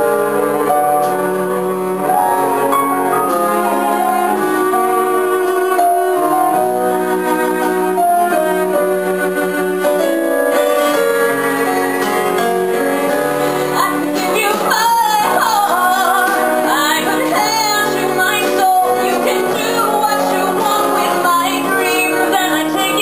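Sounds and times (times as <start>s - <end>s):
cello: 0.0s - 23.0s
piano: 0.0s - 23.0s
woman singing into microphone: 13.7s - 23.0s.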